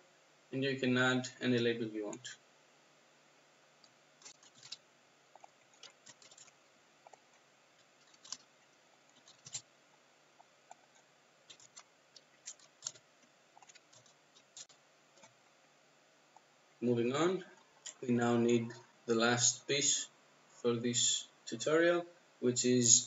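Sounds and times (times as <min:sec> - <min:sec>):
typing on computer keyboard: 0:04.2 - 0:04.8, 0:05.4 - 0:06.5, 0:08.0 - 0:08.5, 0:09.1 - 0:09.6, 0:11.5 - 0:13.0, 0:13.6 - 0:15.3.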